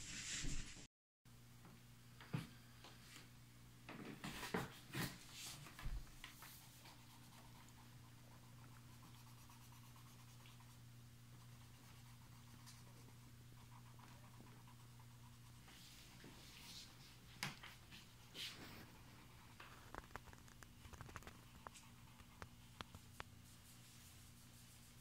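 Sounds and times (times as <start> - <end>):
faint low hum: 1.3 - 25.0.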